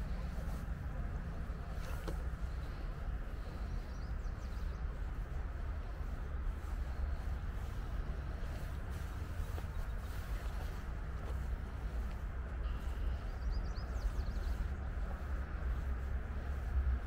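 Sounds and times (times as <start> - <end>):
distant road traffic rumble: 0.0 - 17.0
bird chirps: 12.6 - 14.8.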